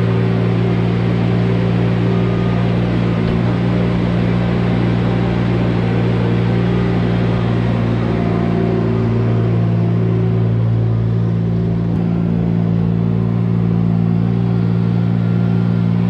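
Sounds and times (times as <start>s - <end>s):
track loader engine droning: 0.0s - 16.0s.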